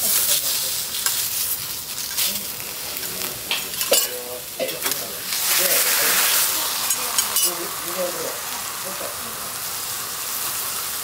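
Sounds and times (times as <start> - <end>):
vegetables sizzling on a griddle: 0.0 - 11.0
metal spatula clinking on griddle: 3.5 - 5.0, 6.9 - 7.6.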